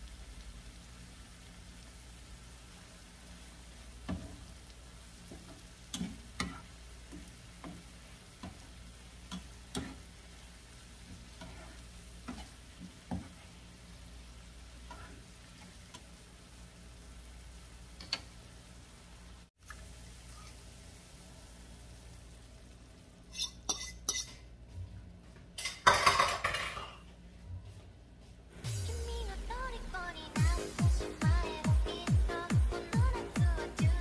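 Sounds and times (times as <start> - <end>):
faint steady sizzle: 0.0 - 34.0
spatula scraping frying pan: 9.2 - 10.2, 11.0 - 13.7, 14.8 - 16.1, 23.3 - 24.4.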